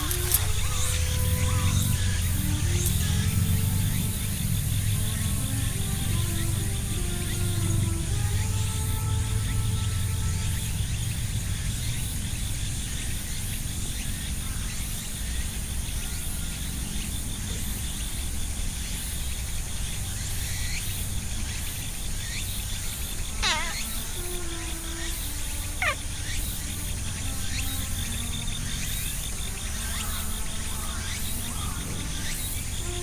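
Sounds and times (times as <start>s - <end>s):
insects trilling: 0.0s - 33.0s
bird call falling in pitch: 23.3s - 24.9s, 25.7s - 26.0s.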